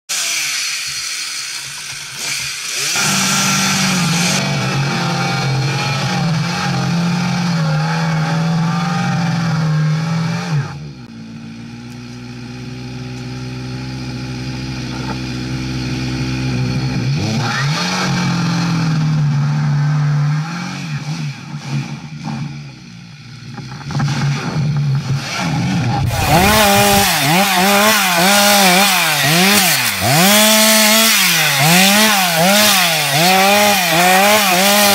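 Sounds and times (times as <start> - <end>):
chainsaw cutting into trunk: 0.1 - 10.9, 23.8 - 34.9
chainsaw engine running: 0.1 - 34.9.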